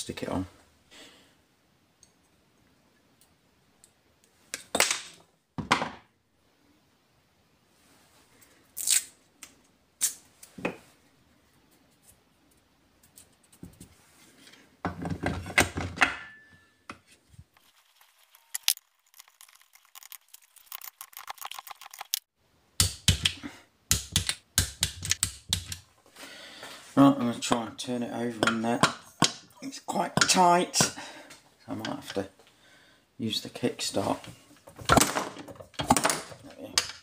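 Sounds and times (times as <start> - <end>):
tape torn off a roll: 8.8 - 9.2.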